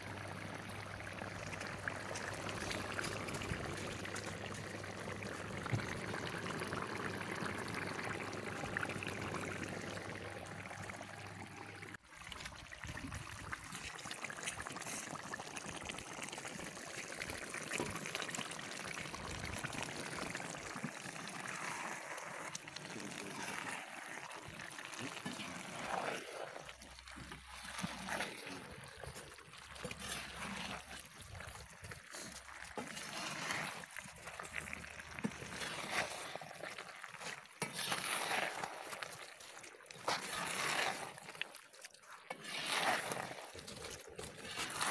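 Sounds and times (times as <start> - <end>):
broth bubbling in a pot: 0.0 - 44.9
wood fire crackling: 0.7 - 8.2.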